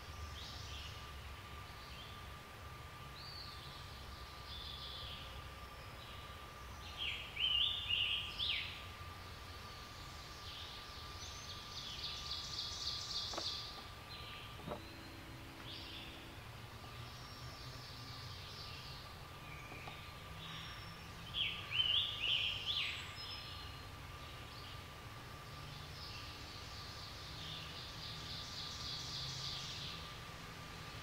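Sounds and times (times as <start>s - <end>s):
songbirds singing: 0.0s - 31.0s
faint steady high tone: 0.1s - 24.7s.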